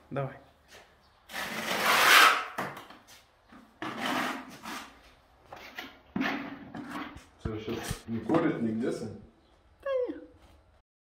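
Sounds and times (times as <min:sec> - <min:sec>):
spatula scraping adhesive on wall: 0:01.3 - 0:02.7, 0:03.8 - 0:07.2.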